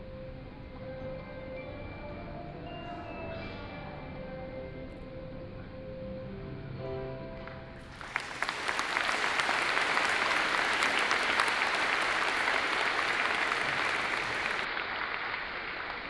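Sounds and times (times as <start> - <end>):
crowd applauding: 7.8 - 16.0.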